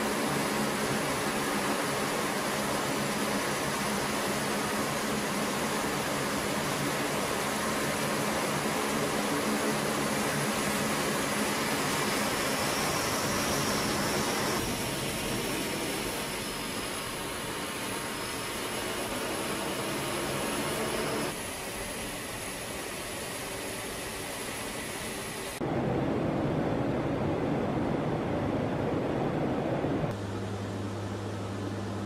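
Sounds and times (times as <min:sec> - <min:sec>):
turboprop engine running: 0:00.0 - 0:32.0.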